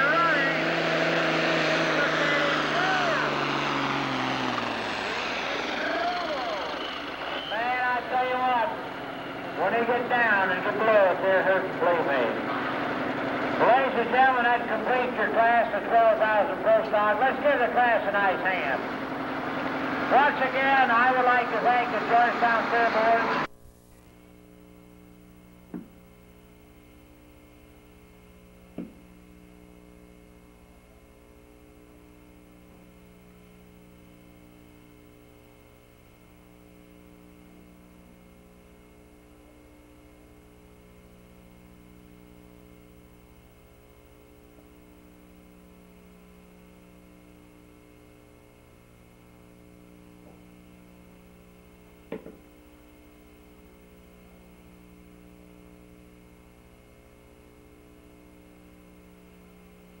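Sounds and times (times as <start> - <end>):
faint electrical mains hum: 20.1 - 60.0.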